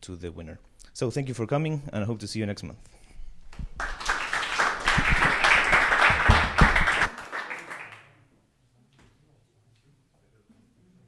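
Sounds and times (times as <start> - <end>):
audience applauding: 3.8 - 8.1.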